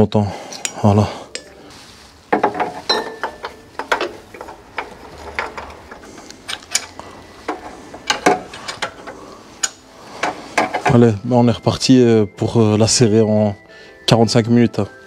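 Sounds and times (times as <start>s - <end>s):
metallic clicks of hand tools: 3.0s - 10.9s.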